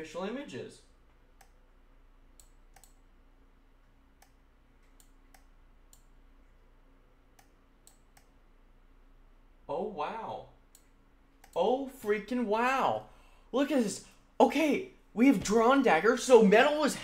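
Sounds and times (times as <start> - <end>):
faint steady hum: 0.0 - 17.0
faint mouse clicks: 1.1 - 1.6, 2.4 - 3.0, 3.8 - 6.1, 7.3 - 8.4.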